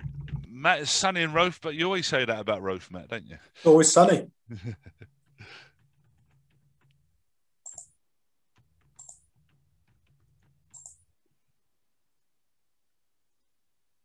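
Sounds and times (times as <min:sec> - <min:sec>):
faint computer clicks: 0:05.2 - 0:11.4.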